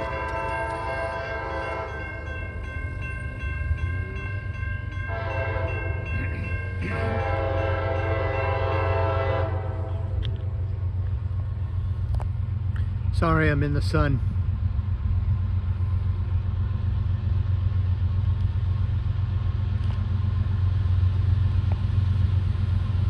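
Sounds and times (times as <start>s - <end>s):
locomotive horn blasts: 0.0s - 2.2s, 5.0s - 6.1s, 6.8s - 10.3s
train rumble: 0.0s - 23.0s.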